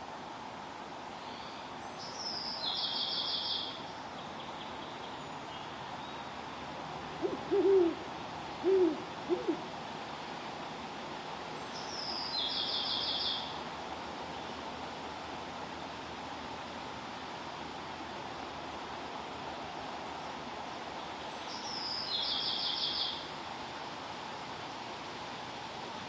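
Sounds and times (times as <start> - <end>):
owl hooting: 7.2 - 8.0, 8.6 - 9.7.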